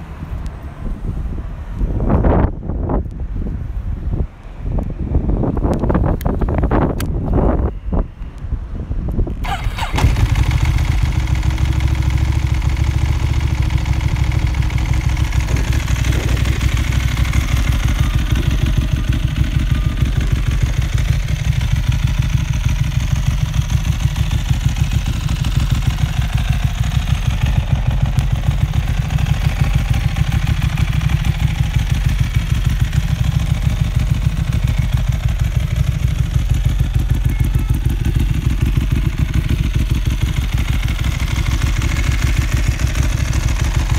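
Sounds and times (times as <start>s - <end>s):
motorcycle engine idling: 9.4s - 43.9s.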